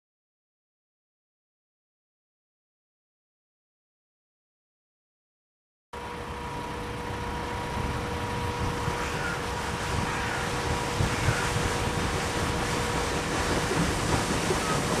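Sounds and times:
faint steady hum: 6.0s - 15.0s
wind buffeting microphone: 7.5s - 15.0s.

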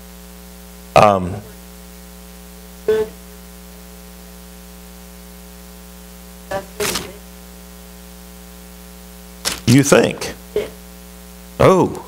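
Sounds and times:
electrical mains hum: 0.0s - 12.0s
book pages turning: 9.5s - 9.8s.

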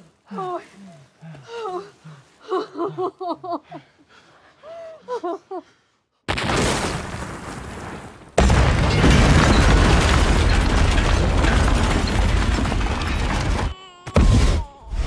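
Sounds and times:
explosion blast: 6.3s - 14.6s
deep explosion rumble: 6.4s - 13.6s.

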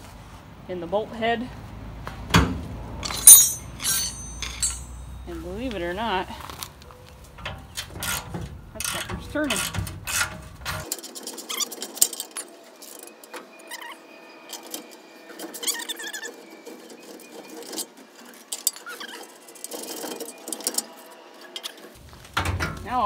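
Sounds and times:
bolt squeaking: 3.0s - 5.0s
wrench clicking and scraping on metal: 3.0s - 5.1s, 7.8s - 13.0s.

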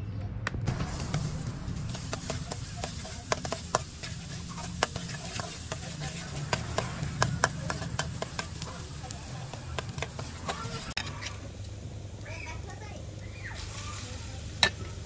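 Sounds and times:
metal spatula scraping a wok: 0.7s - 11.4s
garlic sizzling in oil: 0.7s - 15.0s.

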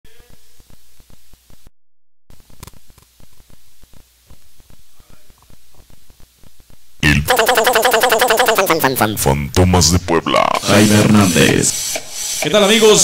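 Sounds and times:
electrical hum and hiss: 0.1s - 1.7s, 2.3s - 13.0s.

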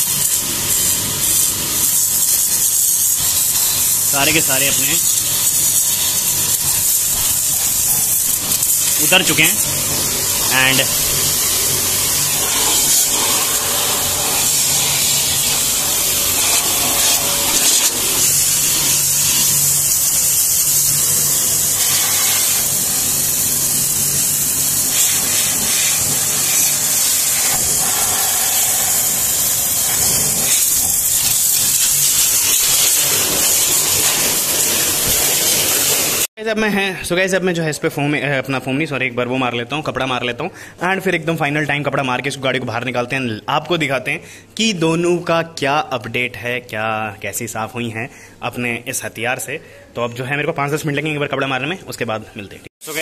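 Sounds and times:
pressure washer spraying water: 0.0s - 36.3s, 52.8s - 53.0s.

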